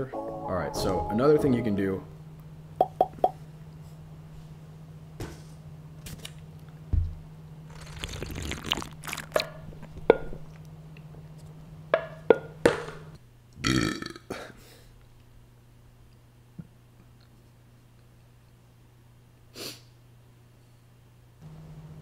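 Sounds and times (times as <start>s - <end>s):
man gulping and swallowing: 7.7s - 9.9s
man burping: 13.6s - 14.6s.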